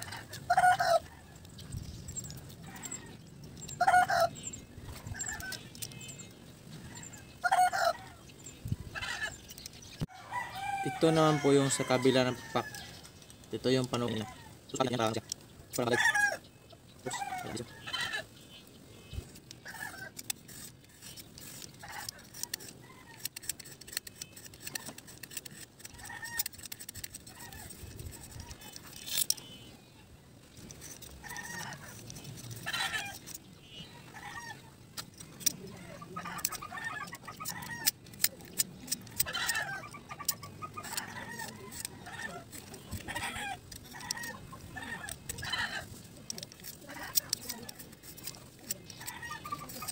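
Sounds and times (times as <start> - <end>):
chickens clucking: 0.0 - 5.9, 6.6 - 13.2, 30.0 - 49.9
knife shaving bamboo strip: 19.3 - 29.7, 30.6 - 33.4, 36.2 - 49.9.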